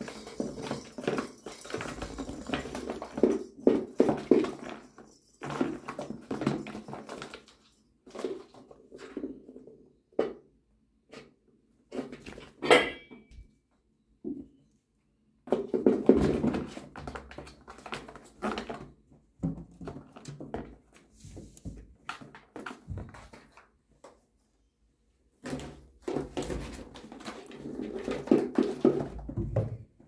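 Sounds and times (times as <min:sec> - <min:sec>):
kittens batting cardboard toy: 0:00.0 - 0:08.6.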